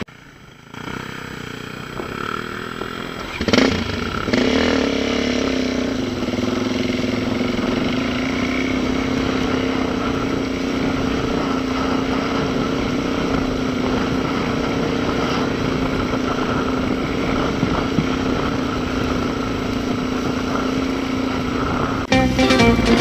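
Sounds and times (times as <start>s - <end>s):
dirt bike engine running: 0.0s - 23.0s
guitar music: 22.1s - 23.0s.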